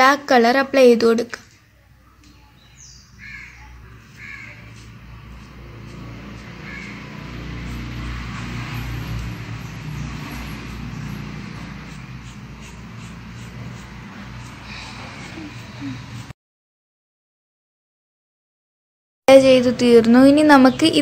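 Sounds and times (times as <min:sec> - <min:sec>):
bird calls: 0:02.3 - 0:04.9, 0:06.6 - 0:07.1
vehicle engine hum passing: 0:03.2 - 0:16.4.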